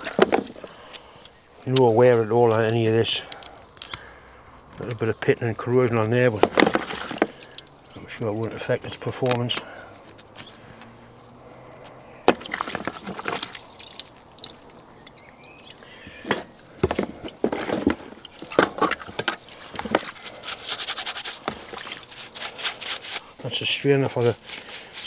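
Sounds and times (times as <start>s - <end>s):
liquid splashing: 6.4s - 8.7s, 11.5s - 16.3s, 17.1s - 23.2s
brush scrubbing metal parts: 16.4s - 25.0s.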